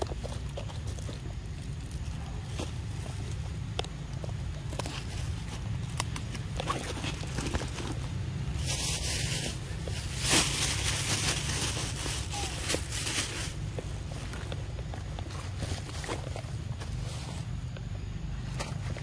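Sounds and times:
rustling in dry leaves: 0.0 - 19.0.

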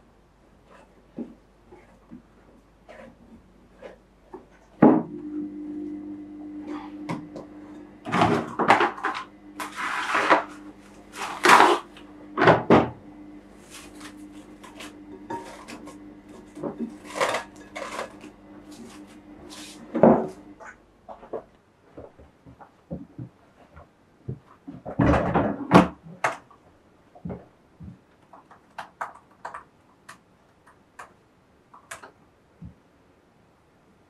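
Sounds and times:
steady low hum: 2.6 - 21.1.

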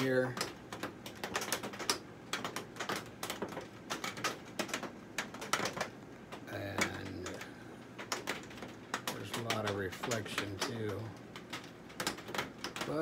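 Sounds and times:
rain tapping on a greenhouse roof: 0.0 - 13.0.

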